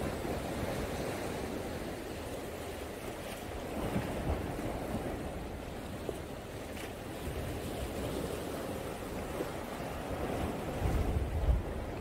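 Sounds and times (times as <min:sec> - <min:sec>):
sea waves washing against rocks: 0:00.0 - 0:12.0
wind buffeting microphone: 0:00.0 - 0:12.0.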